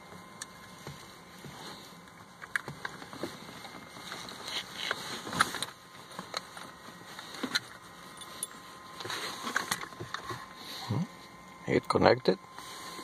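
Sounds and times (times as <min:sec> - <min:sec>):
cable rustling: 0:00.5 - 0:10.5.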